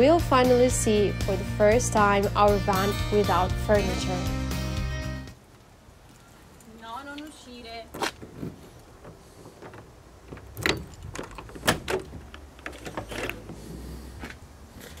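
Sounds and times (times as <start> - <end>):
metallic clicks and clunks of latch: 9.1 - 13.4.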